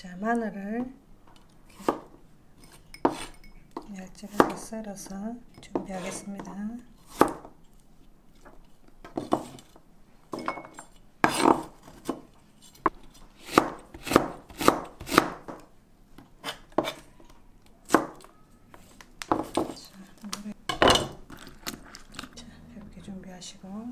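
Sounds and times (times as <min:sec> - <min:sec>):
knife cutting on plastic board: 0:11.2 - 0:12.2.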